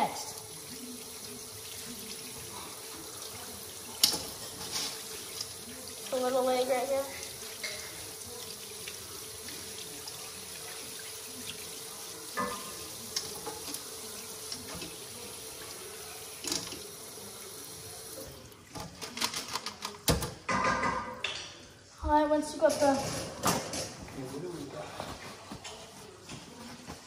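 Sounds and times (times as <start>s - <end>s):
faucet running onto colander: 0.0s - 18.9s.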